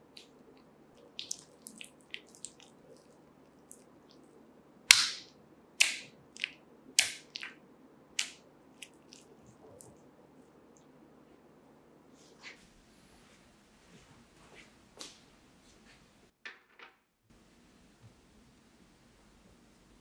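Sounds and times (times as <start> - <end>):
hand slapping wet clay: 4.9 - 7.6, 8.2 - 9.0
squelching clicks of wet clay: 5.8 - 7.6, 8.2 - 9.2.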